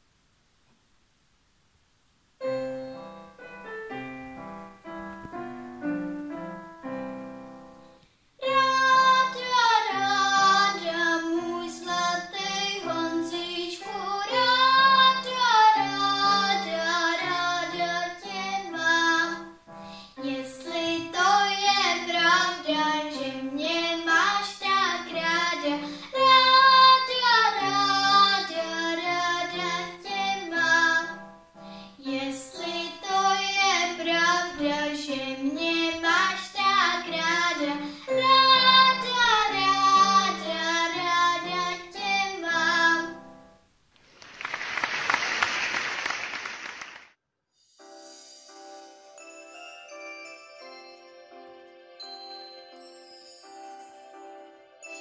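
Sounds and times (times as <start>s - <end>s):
instrumental accompaniment: 2.4s - 9.2s
girl singing: 8.4s - 43.3s.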